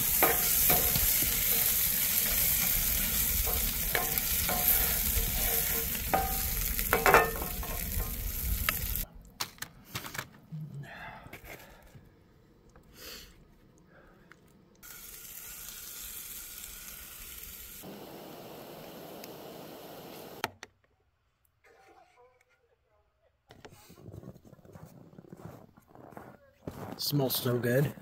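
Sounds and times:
utensil clinking and scraping: 0.0s - 9.0s
vegetables sizzling in a pan: 0.0s - 9.0s, 14.8s - 20.4s.

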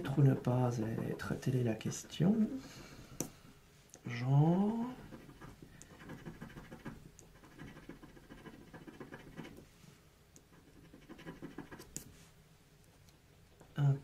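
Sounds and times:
coin scratching scratch card: 5.1s - 9.6s, 10.5s - 12.0s.

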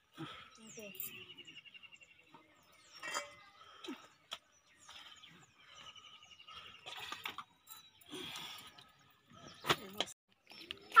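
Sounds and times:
metal plates and bowls clinking: 2.8s - 3.6s.

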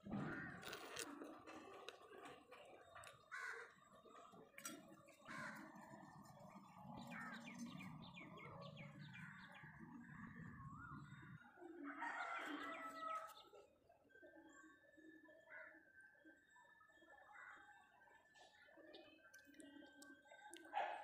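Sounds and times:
crows cawing: 0.1s - 0.7s, 3.2s - 3.8s, 5.2s - 6.0s
small birds chirping: 0.1s - 13.8s.

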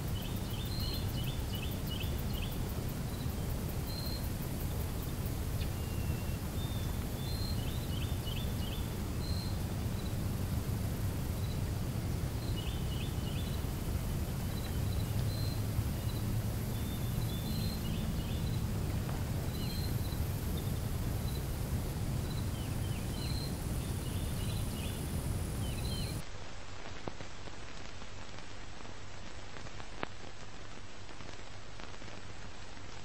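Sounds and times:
small birds chirping: 0.0s - 26.2s
steady low rumble: 6.4s - 26.2s.

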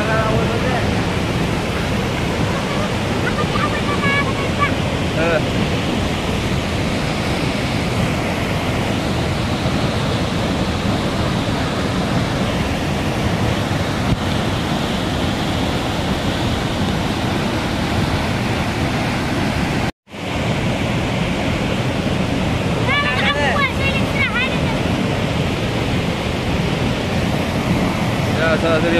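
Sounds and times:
water rushing down a waterfall: 0.0s - 28.9s.

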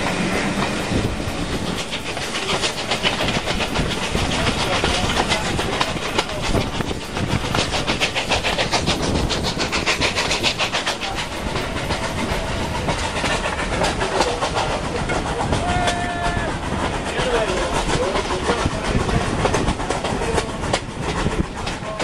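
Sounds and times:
wind rushing past: 0.0s - 14.0s
carriages rumbling on rails: 0.0s - 22.0s
steam locomotive exhaust beats: 0.0s - 22.0s.

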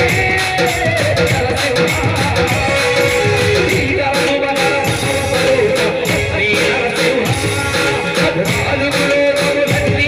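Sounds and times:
devotional song with instruments: 0.0s - 10.0s.

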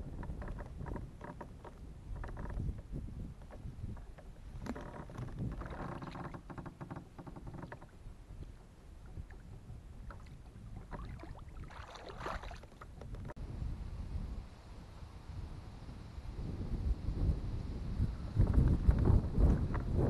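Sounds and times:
wind rumbling on microphone: 0.0s - 20.0s
hand splashing in water: 10.8s - 12.8s.

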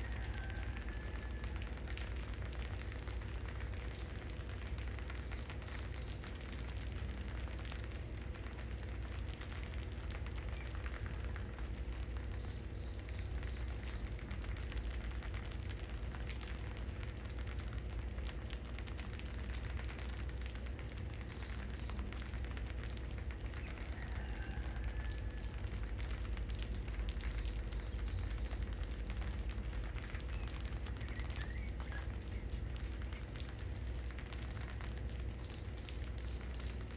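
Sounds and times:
steady low hum: 0.0s - 36.9s
rats scratching and scrabbling: 21.3s - 36.9s
rats squeaking: 30.2s - 33.3s.

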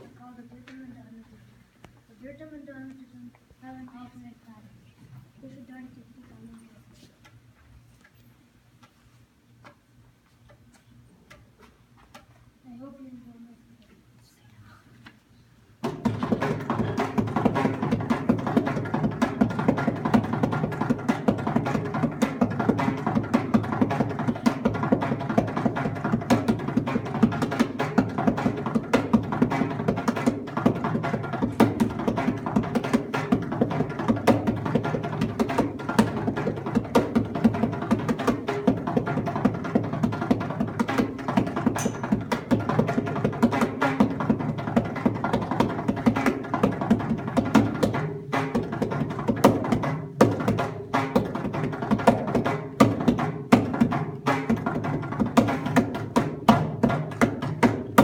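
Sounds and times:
barrel drum played by hand: 15.8s - 58.0s.

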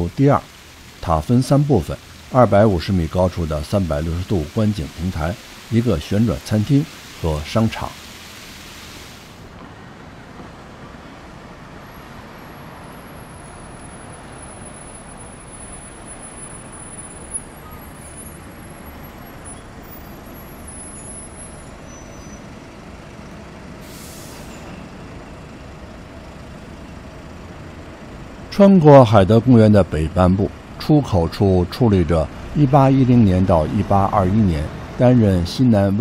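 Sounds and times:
city street traffic: 0.0s - 36.0s
short high hiss: 6.8s - 9.5s, 23.8s - 24.7s.

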